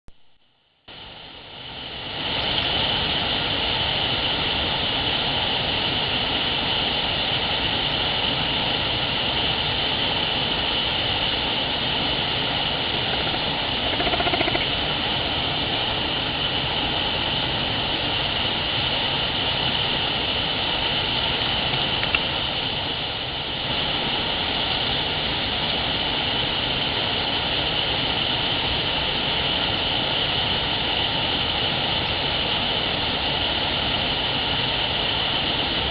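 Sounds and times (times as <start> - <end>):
small waterfall rushing: 0.9 - 35.9
short pitched sound: 12.9 - 14.9
click: 21.7 - 22.2.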